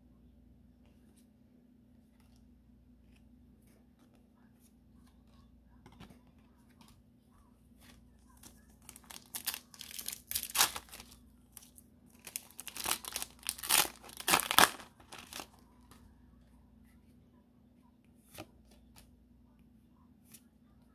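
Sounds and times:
foil wrapper crinkling and tearing: 0:08.4 - 0:15.6.

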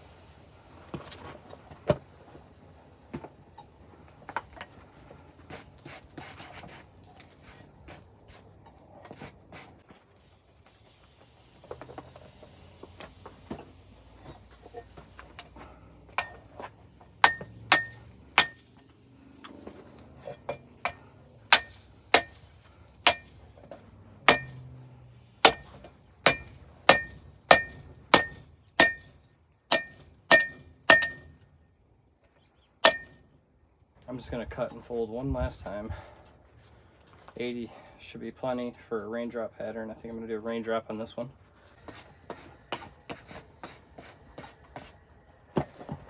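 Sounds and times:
hammer striking steel on anvil: 0:16.2 - 0:16.4, 0:17.2 - 0:18.7, 0:20.5 - 0:22.4, 0:23.0 - 0:23.4, 0:24.2 - 0:24.6, 0:25.4 - 0:31.4, 0:32.8 - 0:33.2.

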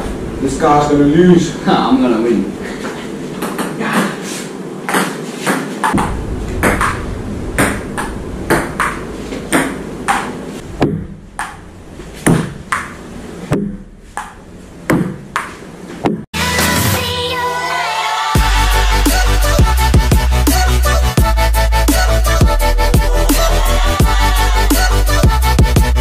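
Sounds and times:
ping-pong ball clicking: 0:11.4 - 0:11.6.

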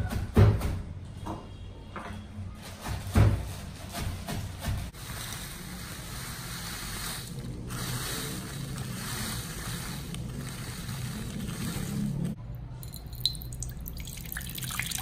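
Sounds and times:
plastic bag crinkling: 0:05.0 - 0:12.4.

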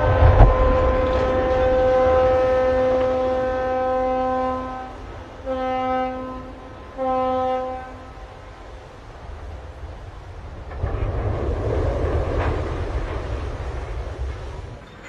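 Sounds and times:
deep rumbling thud of hull in water: 0:00.0 - 0:03.7, 0:10.5 - 0:14.8
ship's horn blasts: 0:00.0 - 0:09.0.

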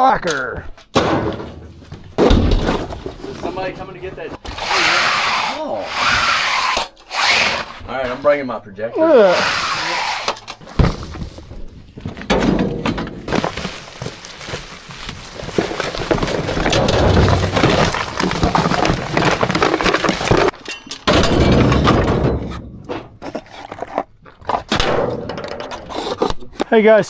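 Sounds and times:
small items clinking: 0:12.9 - 0:22.0
plastic bag rustling: 0:13.2 - 0:20.6.

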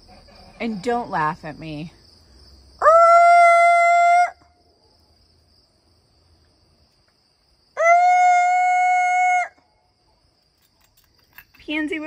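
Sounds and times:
woman imitating chicken alarm call: 0:02.8 - 0:04.5, 0:07.8 - 0:09.6.

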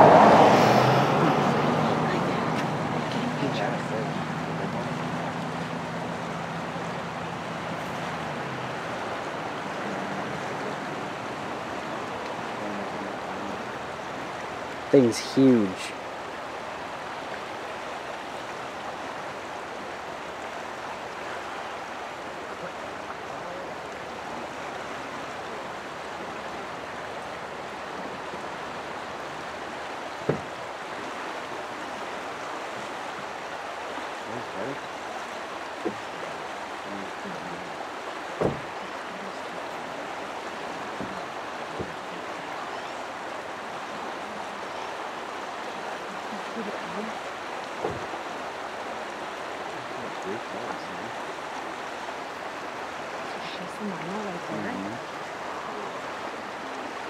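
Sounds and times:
river flowing: 0:00.0 - 0:57.0
brief knocks: 0:38.4 - 0:38.7.

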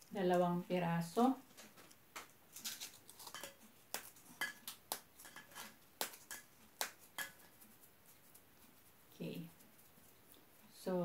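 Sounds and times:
puffed rice snack cracking: 0:02.2 - 0:07.3.

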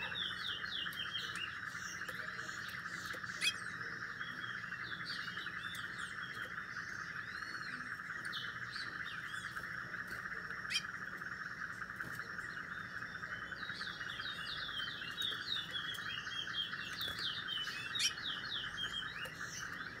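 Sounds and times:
songbird chirping: 0:00.0 - 0:20.0.

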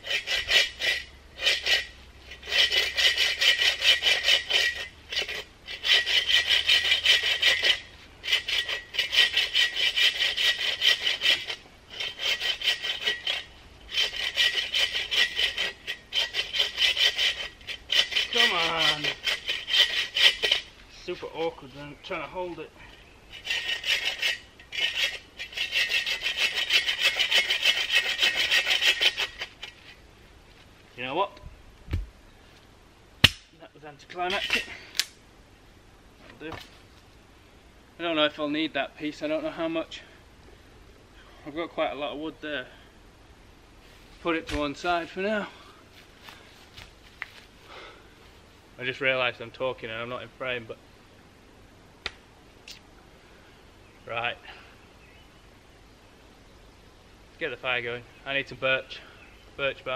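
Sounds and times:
hand saw rasping through branch: 0:00.0 - 0:22.6, 0:23.3 - 0:29.9.

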